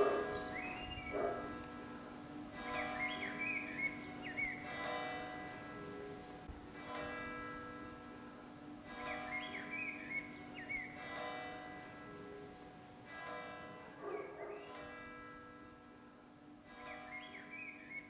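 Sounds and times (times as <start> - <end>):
small birds chirping: 0.0 - 1.5
church bell tolling: 0.0 - 18.0.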